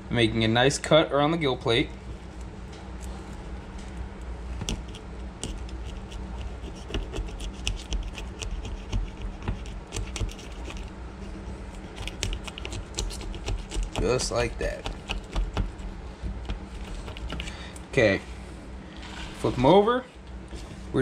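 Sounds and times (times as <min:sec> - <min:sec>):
knife sawing through fish scales: 0:05.5 - 0:16.0.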